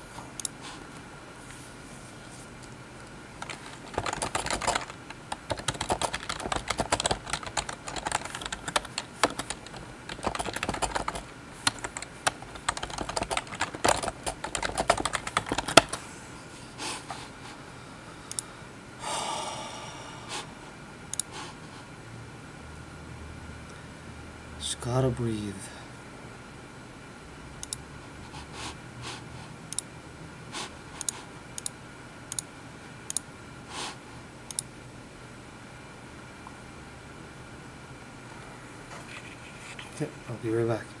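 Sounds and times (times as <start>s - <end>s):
keyboard typing clicks: 3.4s - 16.0s, 27.6s - 27.8s, 31.0s - 32.5s, 33.1s - 33.3s, 34.5s - 34.7s.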